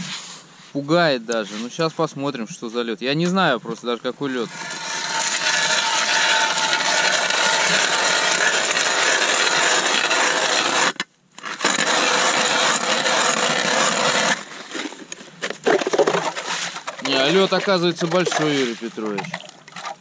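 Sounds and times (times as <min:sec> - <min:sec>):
ice auger grinding through ice: 0:04.2 - 0:20.0.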